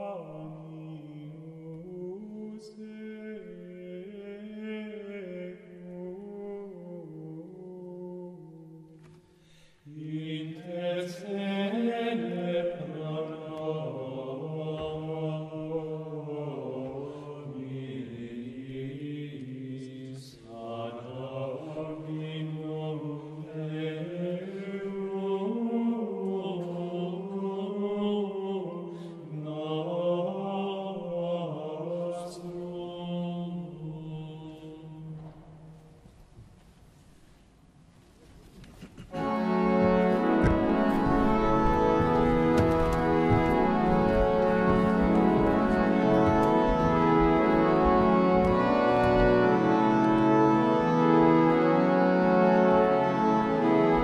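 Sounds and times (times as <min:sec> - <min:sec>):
male choir chanting in unison: 0:09.9 - 0:35.3.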